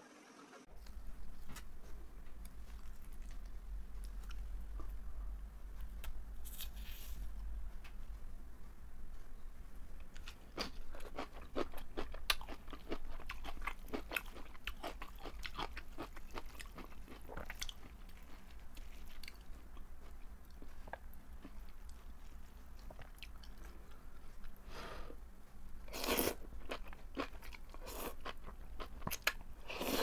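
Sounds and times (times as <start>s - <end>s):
crunchy chewing: 0.8s - 5.2s, 10.1s - 24.6s, 25.9s - 30.0s.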